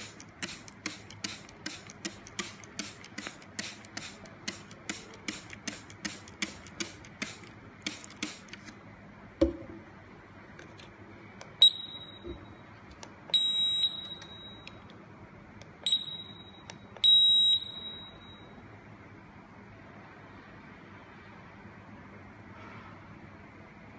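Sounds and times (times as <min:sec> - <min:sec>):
spray bottle squirting water: 0:00.0 - 0:08.6
shot timer beeping: 0:11.6 - 0:12.6, 0:13.3 - 0:14.8, 0:15.8 - 0:18.6.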